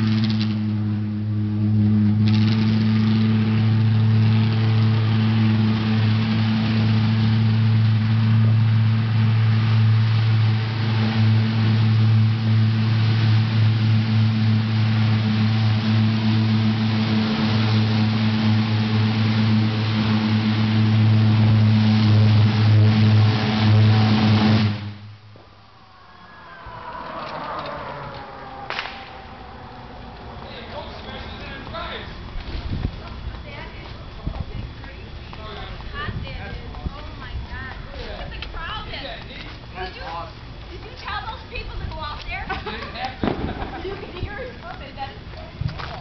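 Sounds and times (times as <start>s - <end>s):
pulse jet engine drone: 0.0s - 46.0s.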